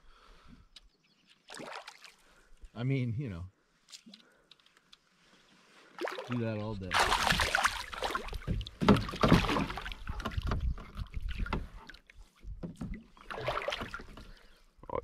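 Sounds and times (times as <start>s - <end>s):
fish thrashing and splashing water: 1.4s - 2.2s, 6.0s - 12.1s, 12.8s - 14.4s
hand splashing in water: 1.5s - 2.2s, 6.0s - 10.1s, 13.2s - 14.1s.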